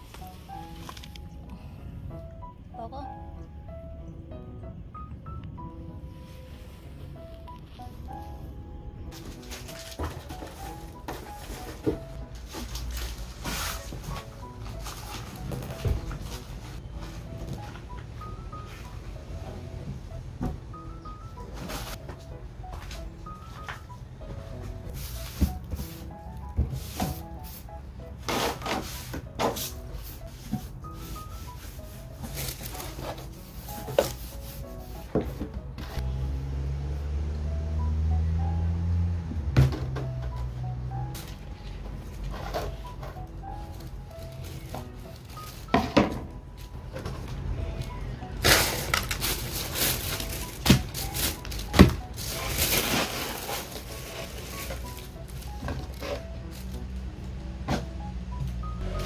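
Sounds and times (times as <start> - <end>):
soft background music: 0.0 - 59.0
plastic bag crinkling: 48.4 - 56.0.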